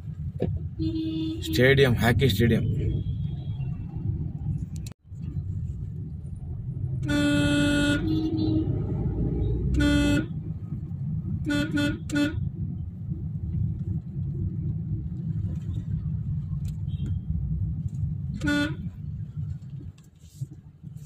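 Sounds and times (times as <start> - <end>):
car interior rumble: 0.0 - 21.0
vehicle horns honking: 0.8 - 2.0, 7.0 - 8.8, 9.6 - 10.3, 11.4 - 12.5, 18.3 - 19.0.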